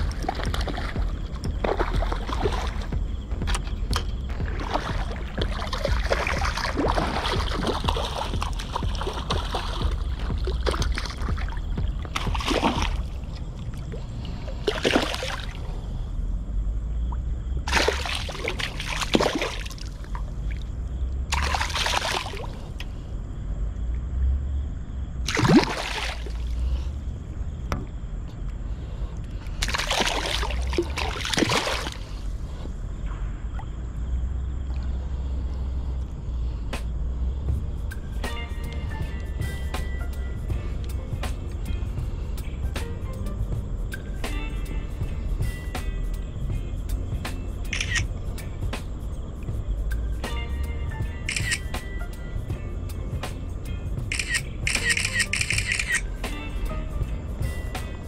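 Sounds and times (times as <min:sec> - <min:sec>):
water splashing and sloshing: 0:00.0 - 0:16.2, 0:16.9 - 0:24.5, 0:25.2 - 0:36.2
low rumble: 0:00.0 - 0:19.1, 0:26.2 - 0:44.2.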